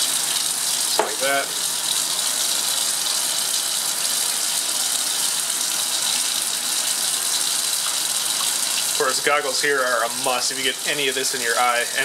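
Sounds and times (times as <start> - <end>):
tap water rushing: 0.0 - 12.0.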